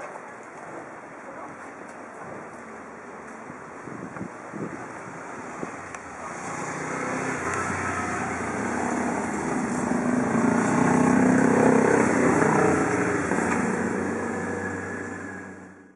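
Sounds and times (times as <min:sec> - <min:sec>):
vehicle engine passing by: 0:05.4 - 0:15.9.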